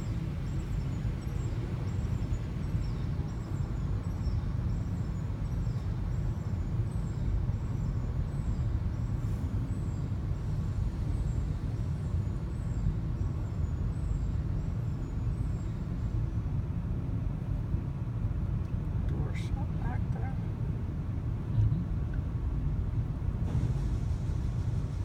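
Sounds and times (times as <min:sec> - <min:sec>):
car wash machinery rumble: 0:19.0 - 0:25.0.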